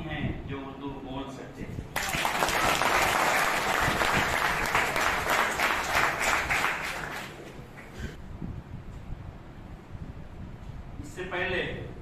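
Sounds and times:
audience applauding: 2.0 - 8.0.

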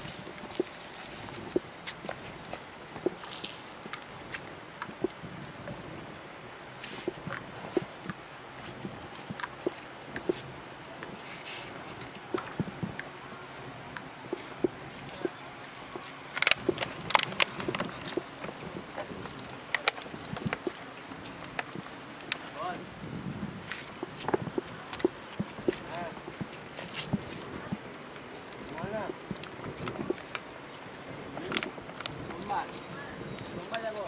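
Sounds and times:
night insects chirring: 0.0 - 34.0.

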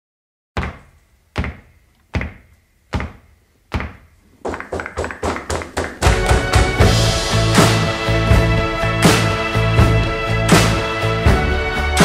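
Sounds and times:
heavy drum thuds: 3.0 - 10.3
theme music: 4.8 - 12.0.

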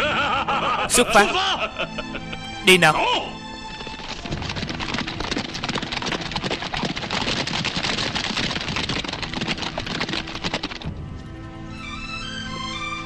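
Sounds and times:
horses galloping: 3.5 - 12.0.

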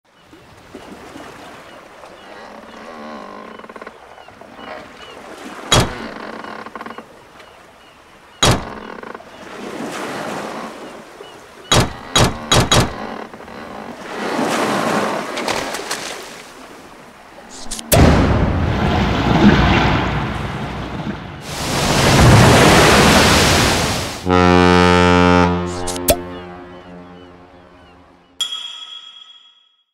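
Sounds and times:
washing waves: 0.1 - 28.2
wooden ship creaking: 1.4 - 18.1.

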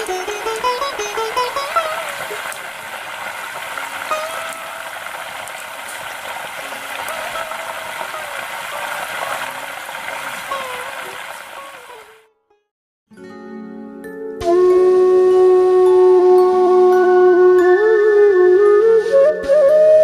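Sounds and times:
butter sizzling in a pan: 0.0 - 11.9.

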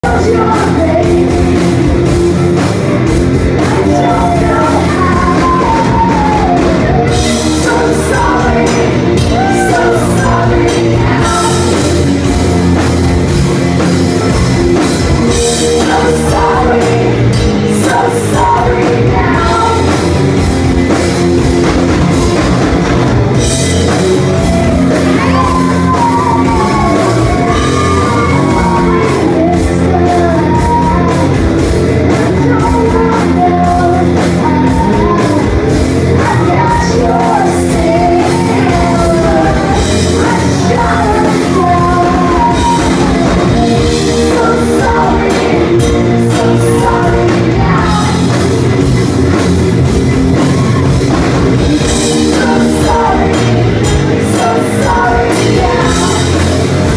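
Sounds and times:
women singing: 0.0 - 2.2, 3.6 - 12.4, 15.3 - 20.2, 24.3 - 48.6, 51.8 - 56.9
live rock band: 0.0 - 56.9.

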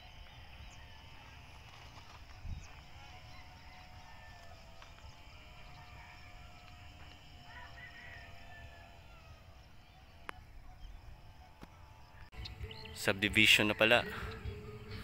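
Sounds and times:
distant bird calls: 0.0 - 15.0
wavering bird chirps: 12.2 - 15.0.

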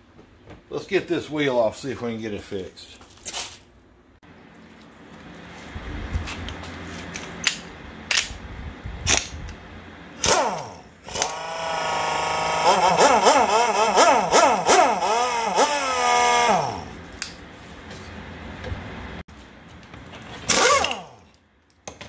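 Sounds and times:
pneumatic impact wrench: 10.2 - 17.0, 20.4 - 21.4.

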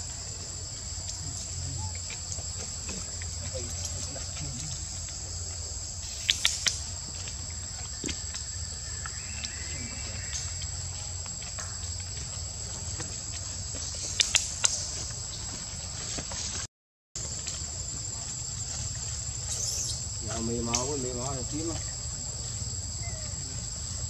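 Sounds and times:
insects droning: 0.0 - 24.0
sharp clicks: 6.1 - 6.8, 14.1 - 14.8.

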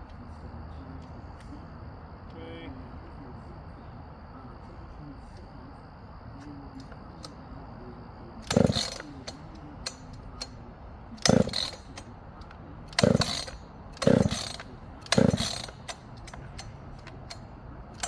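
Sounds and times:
chainsaw starter rope pulls: 8.4 - 10.5, 11.2 - 12.1, 12.9 - 17.4.

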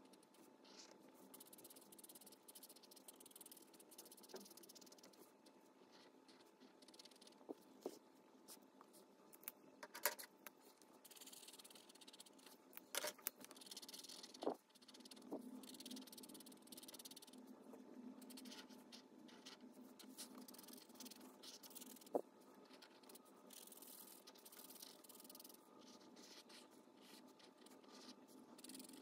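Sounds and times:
marker scratching on paper: 0.0 - 8.6, 11.0 - 12.6, 13.4 - 17.5, 18.2 - 29.0.

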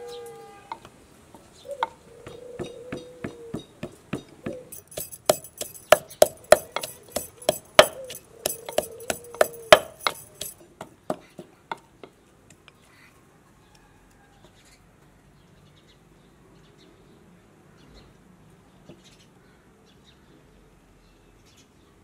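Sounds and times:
wooden pestle pounding in mortar: 2.2 - 11.8.

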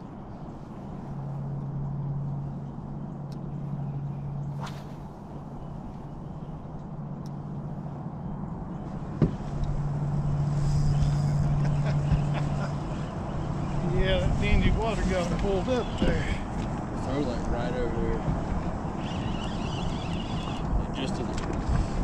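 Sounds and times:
electric trolling motor humming: 9.5 - 14.6, 18.4 - 20.9.

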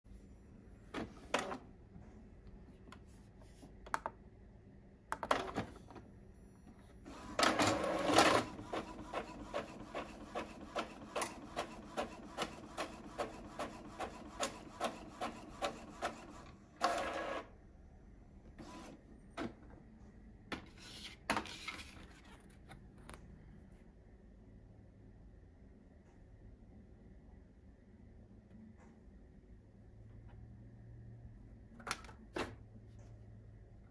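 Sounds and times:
printer mechanism noise: 7.0 - 17.5, 18.6 - 19.6.

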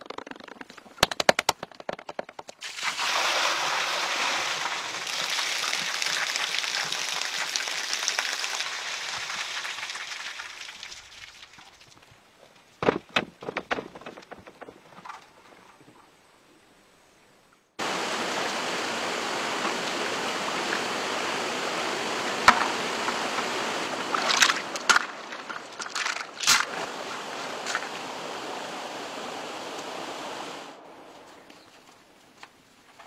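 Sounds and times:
stream running over rocks: 2.6 - 12.2, 17.8 - 30.8.

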